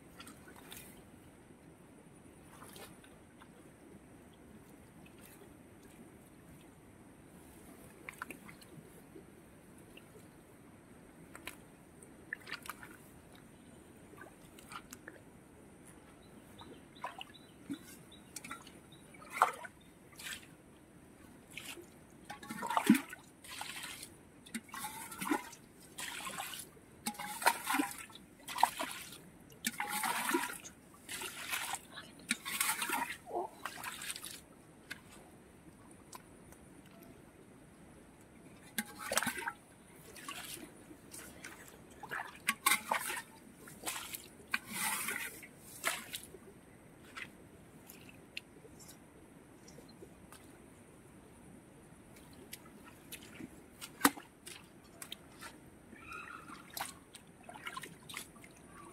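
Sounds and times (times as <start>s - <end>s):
muddy water splashing: 12.3s - 13.5s, 16.5s - 20.6s, 21.5s - 35.3s, 38.5s - 48.6s, 52.1s - 58.9s.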